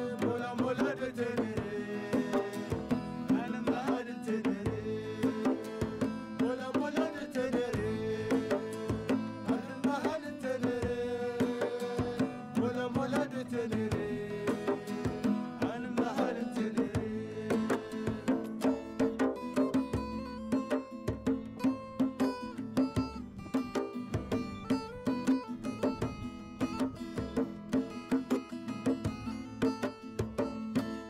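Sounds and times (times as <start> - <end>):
acoustic guitars playing: 0.0 - 31.0
hand drum beat: 0.0 - 31.0.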